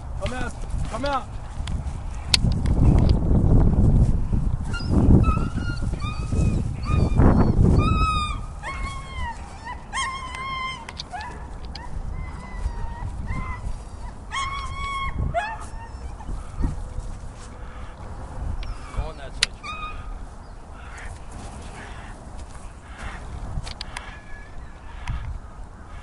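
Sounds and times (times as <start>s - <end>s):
dog whining and yelping: 4.6s - 17.0s, 19.6s - 20.2s.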